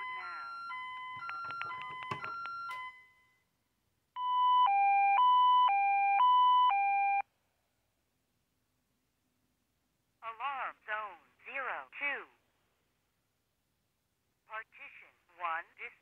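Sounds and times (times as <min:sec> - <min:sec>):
touch-tone phone key tones: 0:00.0 - 0:03.1
two-tone alarm signal: 0:00.0 - 0:03.4, 0:04.2 - 0:07.2.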